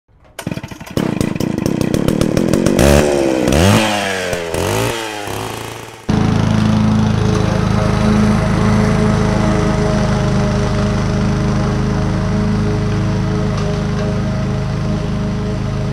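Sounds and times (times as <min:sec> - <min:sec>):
lawn mower engine running: 0:00.1 - 0:15.9
small petrol engine revving: 0:00.4 - 0:15.9.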